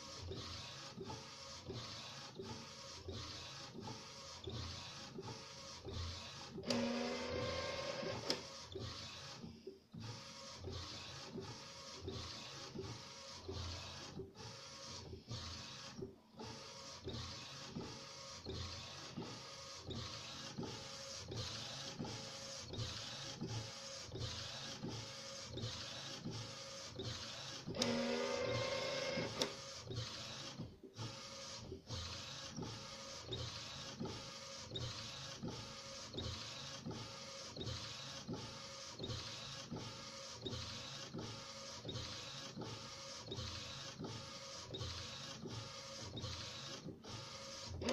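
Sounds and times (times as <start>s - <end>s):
printer motor whine: 6.1s - 9.4s, 21.4s - 31.4s, 36.2s - 47.9s.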